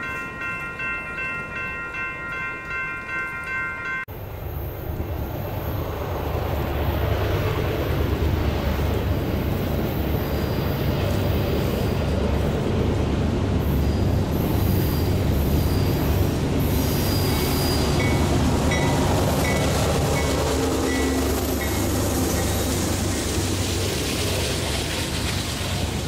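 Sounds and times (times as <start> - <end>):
diesel locomotive engine rumble: 4.1 - 26.0
freight cars rolling by: 4.2 - 26.0
high-pitched wheel squeals: 13.8 - 18.2.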